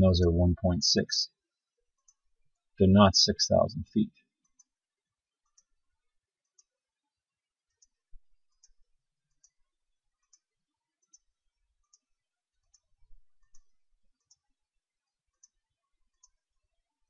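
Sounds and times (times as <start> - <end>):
computer mouse clicks: 12.7 - 14.4.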